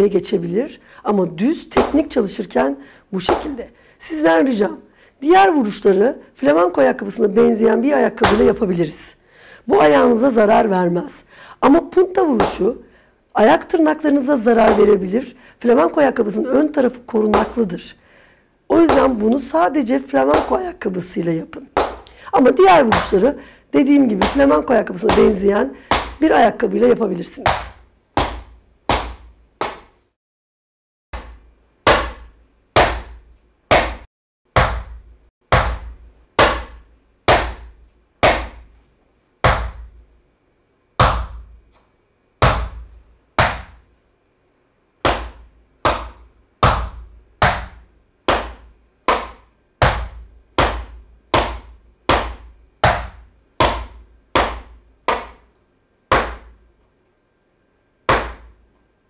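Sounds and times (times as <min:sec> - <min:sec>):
shoe stamps on wooden floor: 0:03.3 - 0:03.6, 0:21.8 - 0:22.0, 0:27.5 - 0:29.9.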